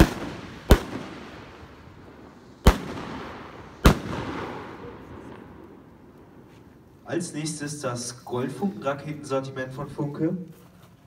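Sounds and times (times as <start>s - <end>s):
firework rockets bursting with echo: 0.0s - 6.7s.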